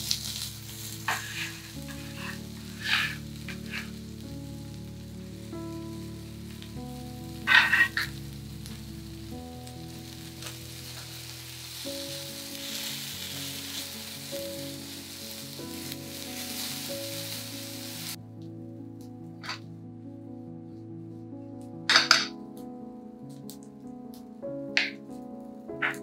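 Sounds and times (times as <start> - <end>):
onions sizzling in pan: 0.0 - 18.2, 21.9 - 22.3, 24.7 - 26.0
soft background music: 0.0 - 26.0.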